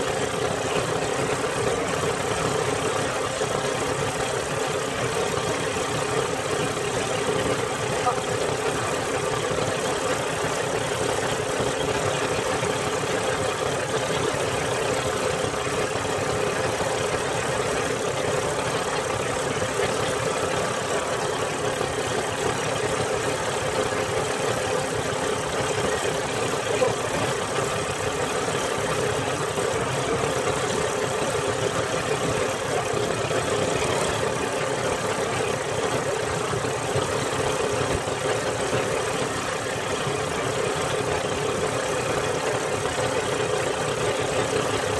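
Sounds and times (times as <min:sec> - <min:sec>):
boat engine running: 0:00.0 - 0:44.9.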